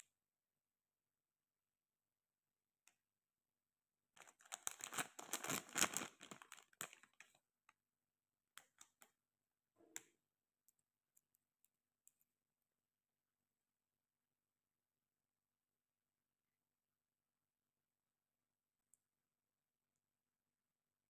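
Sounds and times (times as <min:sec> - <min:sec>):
cable handling rustling and clicking: 0:04.2 - 0:07.4.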